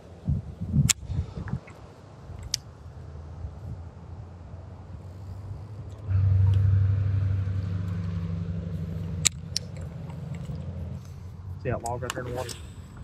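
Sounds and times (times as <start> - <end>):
sharp clicks: 9.0 - 11.2.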